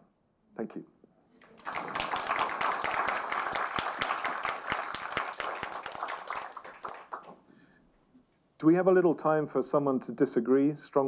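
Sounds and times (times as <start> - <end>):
audience applauding: 1.4 - 7.4.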